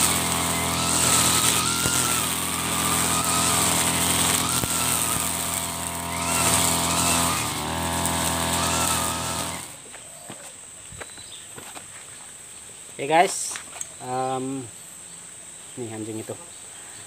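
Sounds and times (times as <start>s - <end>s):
whine rising and falling: 0.0s - 9.9s
brush cutter cutting grass: 0.0s - 10.0s.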